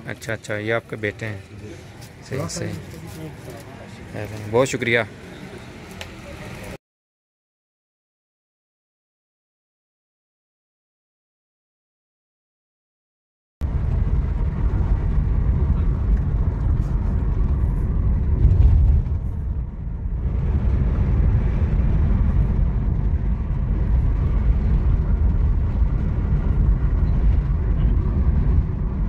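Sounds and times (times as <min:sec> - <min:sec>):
car road and engine rumble: 0:00.0 - 0:06.8, 0:13.6 - 0:29.0.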